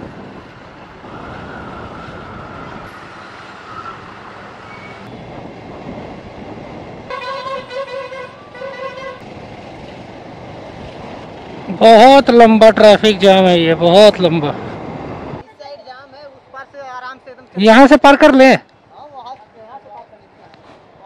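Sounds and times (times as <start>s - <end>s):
motorcycle and traffic noise: 0.0s - 7.1s, 8.1s - 17.6s, 18.7s - 21.0s
vehicle horn honking: 7.1s - 9.2s.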